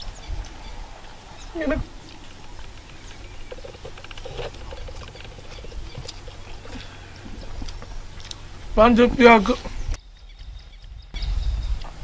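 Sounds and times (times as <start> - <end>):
small eating clicks: 2.0 - 8.8
person eating and chewing: 2.2 - 8.6.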